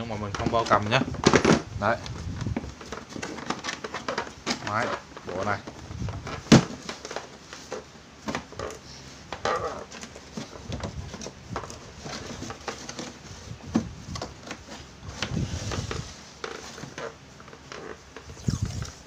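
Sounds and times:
case thumping on tile floor: 1.2s - 1.7s, 6.3s - 7.0s.

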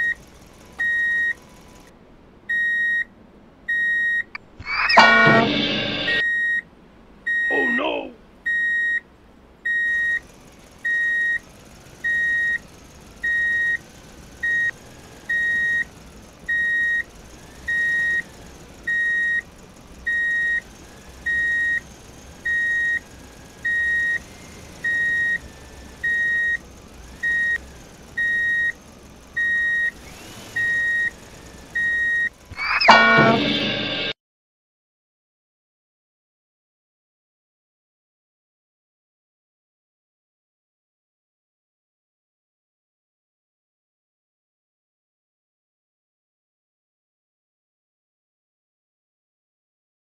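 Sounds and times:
reversing alarm beeping: 0.0s - 1.9s, 2.5s - 3.1s, 3.7s - 6.6s, 7.3s - 9.0s, 9.7s - 10.2s, 10.8s - 34.2s
short loud burst: 4.6s - 6.2s, 32.5s - 34.2s.

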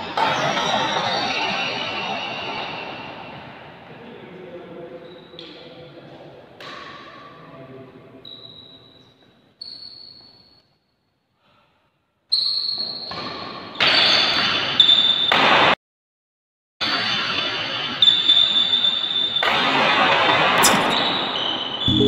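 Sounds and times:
shoe squeaks on court floor: 5.0s - 5.6s, 8.2s - 10.8s, 12.3s - 15.3s, 20.6s - 21.9s.

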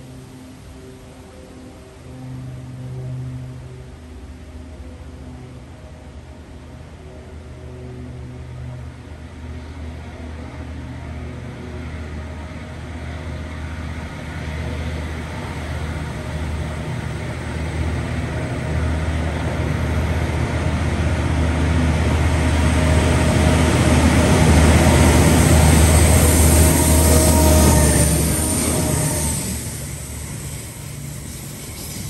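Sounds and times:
diesel locomotive engine drone: 0.0s - 32.0s.

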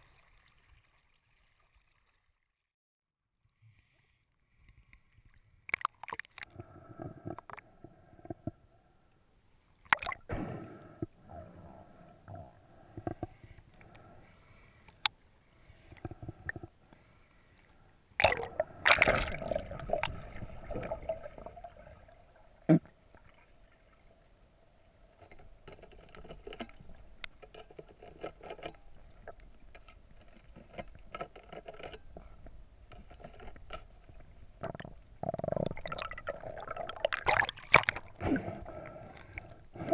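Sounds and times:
water sloshing and splashing: 0.0s - 2.6s, 18.2s - 24.3s, 25.1s - 34.8s, 35.5s - 38.4s.

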